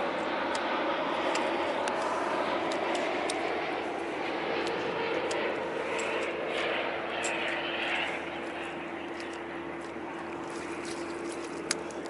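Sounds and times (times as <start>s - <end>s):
boat engine humming: 0.0s - 12.0s
wind: 0.0s - 12.0s.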